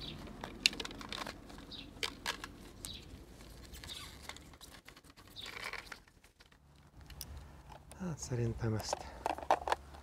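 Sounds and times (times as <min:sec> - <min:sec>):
gloved hands rubbing and rustling: 0:00.0 - 0:07.0
plastic parts clicking: 0:00.4 - 0:03.0, 0:03.7 - 0:08.0, 0:08.7 - 0:10.0.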